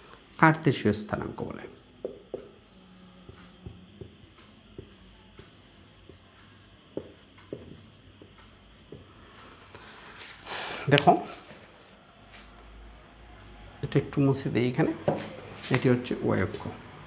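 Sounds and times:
marker tapping and scratching on whiteboard: 1.2s - 9.4s, 16.4s - 17.0s.

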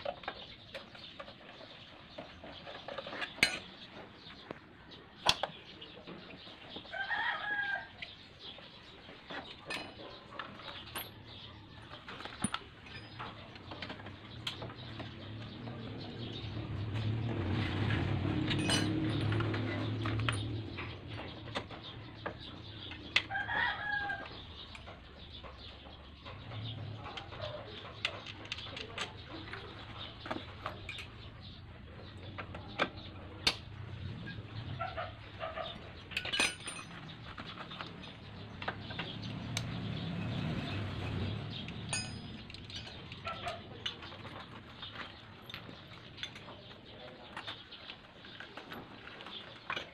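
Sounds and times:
metal clicks of tools and bolts: 2.6s - 4.0s, 5.2s - 5.6s, 9.3s - 15.5s, 18.4s - 23.4s, 26.4s - 31.5s, 35.9s - 44.5s, 45.2s - 49.9s
chickens calling: 18.9s - 36.3s.

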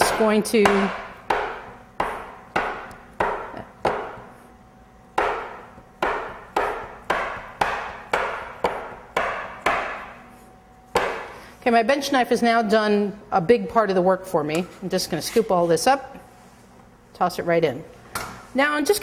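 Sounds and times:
knife chopping butter: 0.0s - 4.2s, 5.2s - 10.2s.

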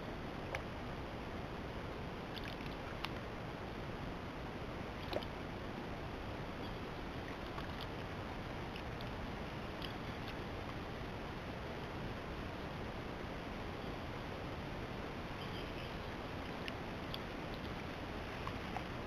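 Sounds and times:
small water splashes and drips: 2.3s - 3.2s, 5.0s - 5.4s.

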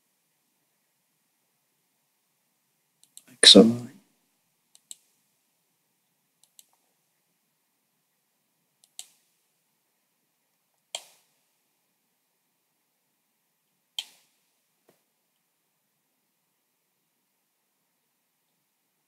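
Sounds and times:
computer mouse clicking: 3.0s - 3.3s, 4.7s - 5.1s, 6.4s - 6.8s, 8.8s - 9.2s, 10.9s - 11.2s.

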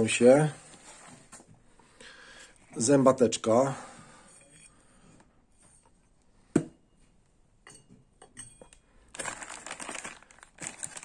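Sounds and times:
plastic packaging crinkling: 9.1s - 11.0s.

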